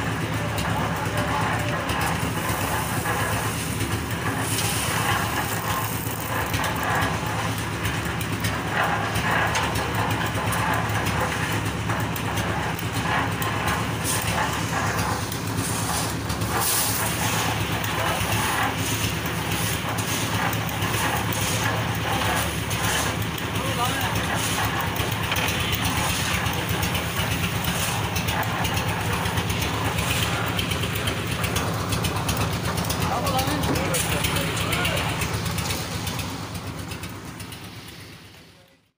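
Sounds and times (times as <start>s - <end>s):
machine engine droning: 0.0s - 38.9s.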